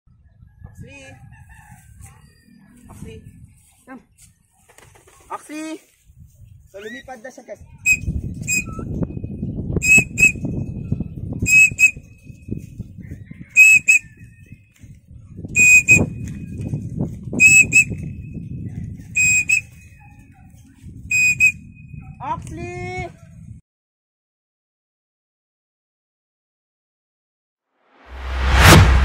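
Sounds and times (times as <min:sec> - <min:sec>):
high two-note whistle: 0:07.9 - 0:08.9, 0:11.5 - 0:12.0, 0:15.6 - 0:16.2, 0:19.2 - 0:19.7, 0:21.1 - 0:21.6.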